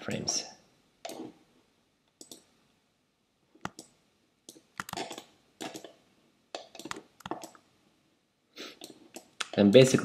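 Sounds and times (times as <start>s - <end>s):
mouse and keyboard clicks: 1.0s - 1.3s, 2.1s - 2.5s, 3.6s - 6.0s, 6.6s - 7.6s, 8.8s - 9.6s.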